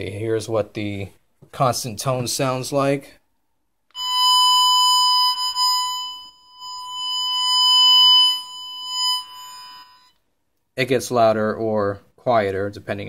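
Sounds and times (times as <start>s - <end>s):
constant probe tone: 3.9s - 10.2s.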